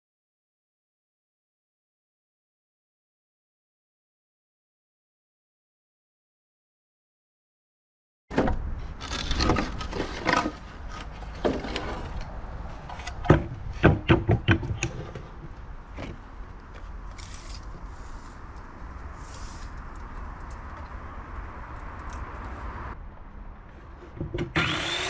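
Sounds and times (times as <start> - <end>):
sharp wooden knocks: 13.2 - 16.2.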